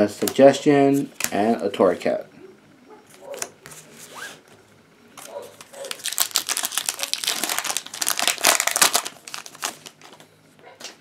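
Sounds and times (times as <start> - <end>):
foil wrapper crinkling: 5.2 - 10.3.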